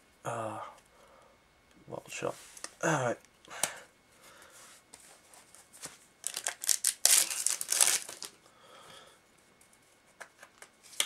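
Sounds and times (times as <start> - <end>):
foil wrapper crinkling and tearing: 6.2 - 8.4.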